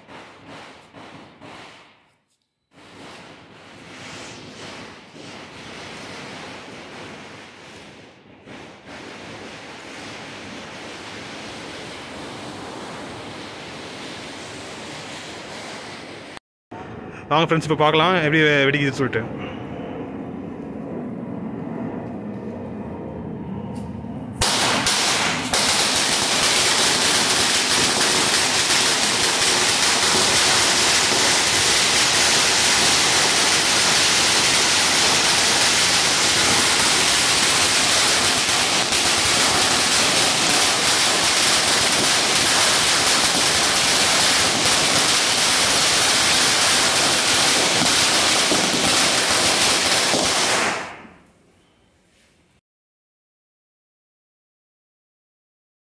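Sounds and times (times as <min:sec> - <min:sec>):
firecrackers rapid bangs: 0:00.0 - 0:02.1, 0:02.7 - 0:16.4, 0:24.4 - 0:51.2.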